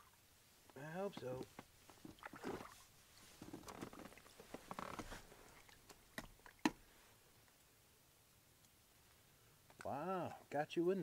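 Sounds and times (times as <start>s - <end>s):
faint splash: 2.0s - 2.9s, 5.2s - 7.0s.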